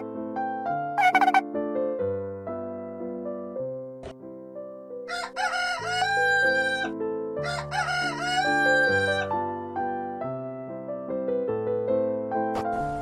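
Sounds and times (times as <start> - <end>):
gentle piano music: 0.0 - 13.0
rooster crowing: 5.1 - 9.3.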